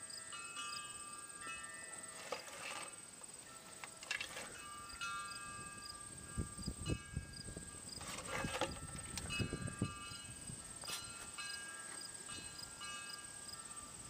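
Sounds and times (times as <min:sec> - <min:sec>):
insect drone: 0:00.0 - 0:14.0
chime-like tones: 0:00.1 - 0:07.5, 0:08.8 - 0:14.0
low thumps and rustles: 0:08.0 - 0:09.9.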